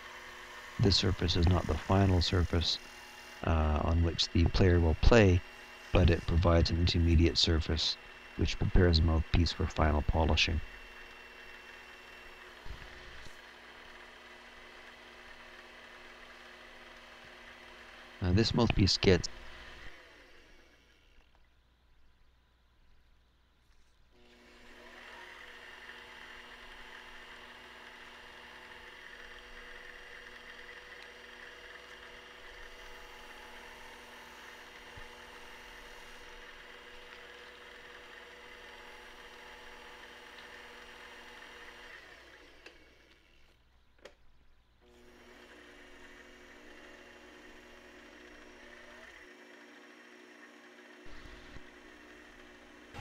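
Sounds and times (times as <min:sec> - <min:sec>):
metal lathe whining: 0:00.0 - 0:21.2, 0:24.2 - 0:43.5, 0:44.8 - 0:53.0
file and emery cloth on metal: 0:03.4 - 0:09.4.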